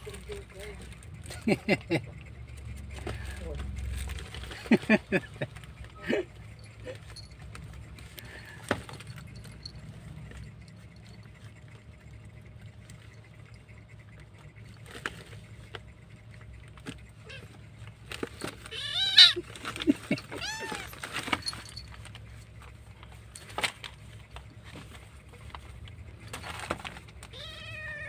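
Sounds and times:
kittens scuffling: 0.0s - 28.0s
small collar bell jingling: 6.3s - 12.1s, 20.1s - 23.6s
kitten mewing: 18.7s - 19.5s, 20.2s - 21.0s, 27.3s - 28.0s.

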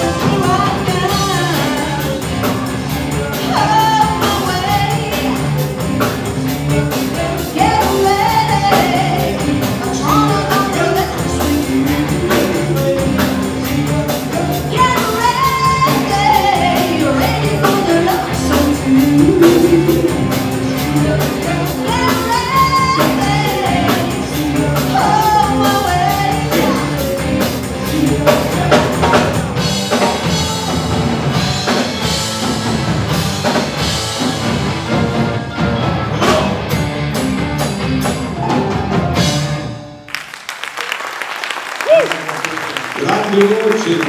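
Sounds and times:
soul band playing: 0.0s - 40.2s
person singing: 13.8s - 23.7s.

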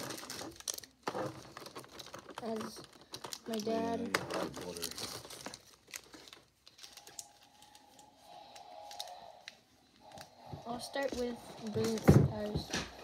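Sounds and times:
foil pack crinkling: 0.0s - 10.3s.

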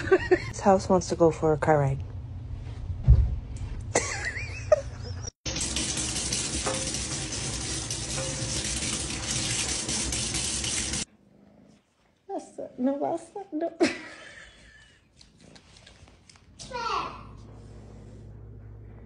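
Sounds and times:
tap running into steel sink: 5.7s - 10.8s
low hum: 17.3s - 19.0s.

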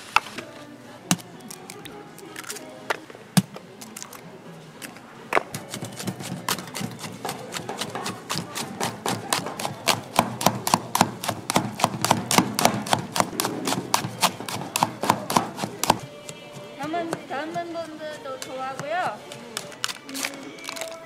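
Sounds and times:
utensil clinking against metal pitcher: 5.4s - 11.6s.

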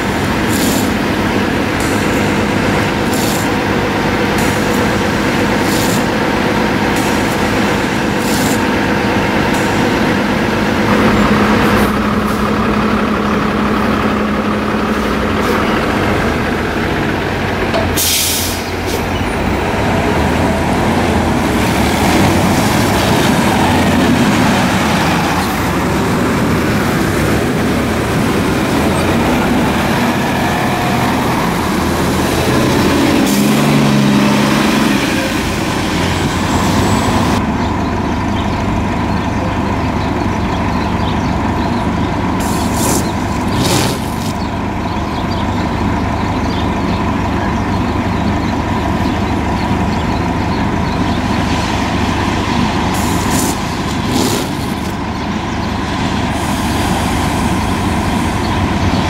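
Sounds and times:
bus engines idling: 0.0s - 59.0s
air brake hiss: 18.0s - 19.1s.

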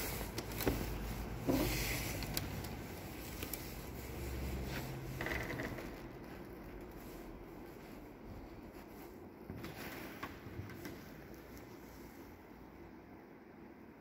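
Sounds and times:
low room rumble: 0.0s - 14.0s.

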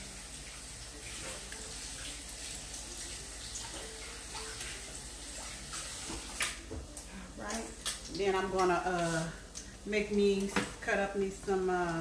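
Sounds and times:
food sizzling in hot oil: 0.0s - 6.7s.

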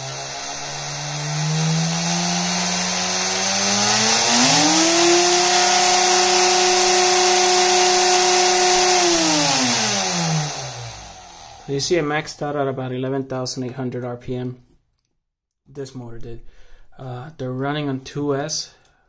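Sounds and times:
electric motor whine: 0.0s - 11.9s.

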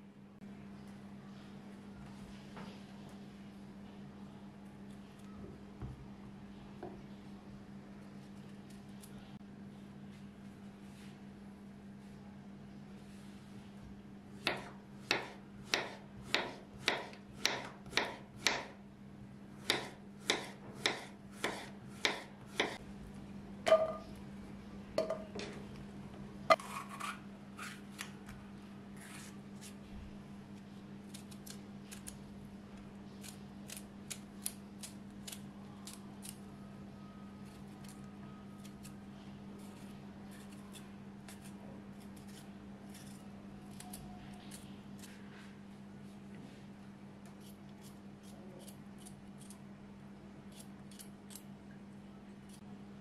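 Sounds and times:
knife chopping on wooden board: 14.4s - 18.7s, 19.7s - 22.8s.

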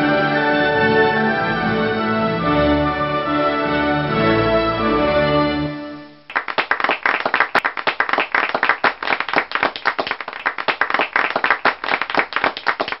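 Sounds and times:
people clapping: 6.3s - 13.0s.

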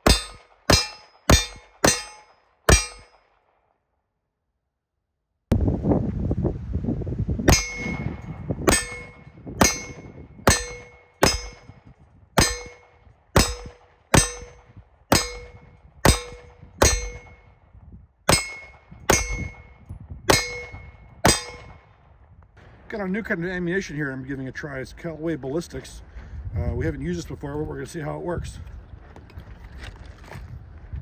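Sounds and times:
steel target ringing: 0.0s - 3.3s, 7.5s - 11.8s, 12.4s - 17.6s, 18.3s - 21.8s
pistol shots: 0.0s - 3.6s, 7.5s - 11.8s, 12.4s - 17.5s, 18.3s - 22.0s.

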